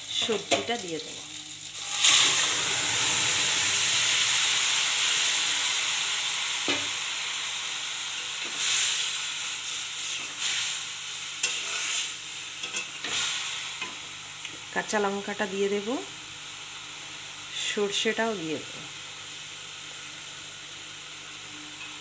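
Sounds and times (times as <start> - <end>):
vegetables sizzling in hot oil: 0.0 - 22.0
metal spatula stirring: 11.4 - 13.1.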